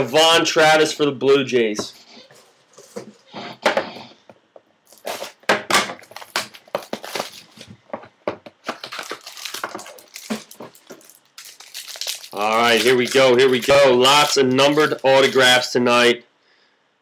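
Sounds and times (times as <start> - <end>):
plastic wrappers crinkling: 4.8 - 7.8, 8.6 - 15.6.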